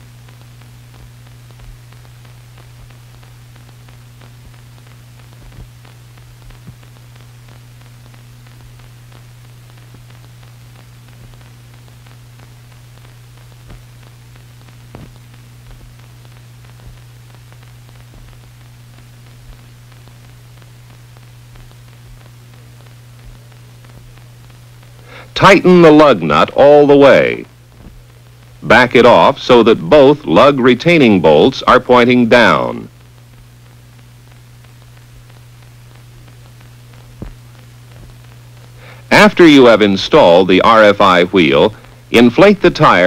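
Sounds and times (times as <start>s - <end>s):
faint clicks and pops: 0.0s - 25.4s, 27.4s - 28.6s, 32.8s - 39.1s
film soundtrack hiss and hum: 0.0s - 43.0s.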